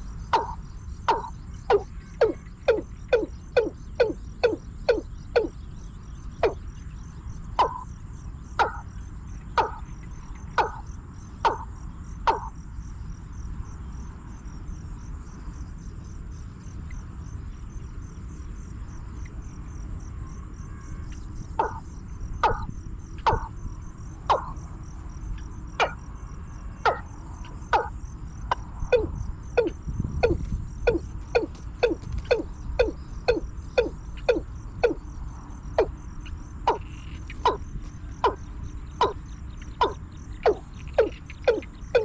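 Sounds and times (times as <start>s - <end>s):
insects chirring: 0.0s - 42.0s
bird call with down-slurred notes: 0.3s - 5.6s, 7.6s - 7.8s, 28.9s - 35.0s, 39.8s - 42.0s.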